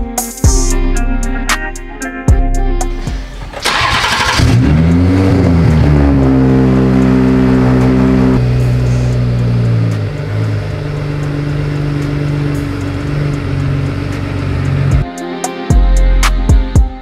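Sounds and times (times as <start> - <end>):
car engine idling: 2.9 - 15.0.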